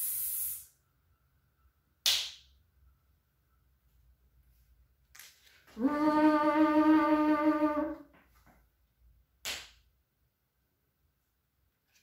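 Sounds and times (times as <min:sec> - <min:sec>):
short breathy hiss: 0:00.0 - 0:00.7.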